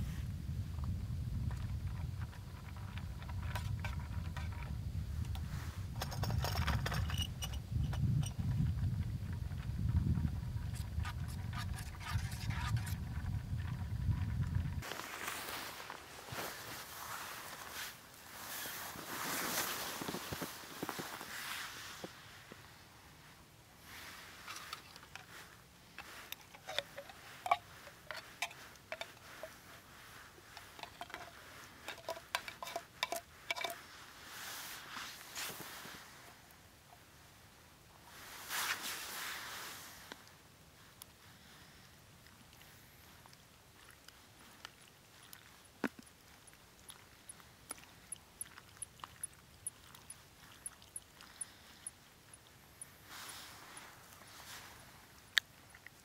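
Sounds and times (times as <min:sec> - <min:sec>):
light metallic clicks and clinks: 0:06.0 - 0:08.5, 0:24.4 - 0:33.8, 0:44.6 - 0:54.6
spoon scraping in pot: 0:10.7 - 0:13.2, 0:26.0 - 0:29.8, 0:30.4 - 0:33.8
spoon clinking metal pot: 0:30.5 - 0:33.8.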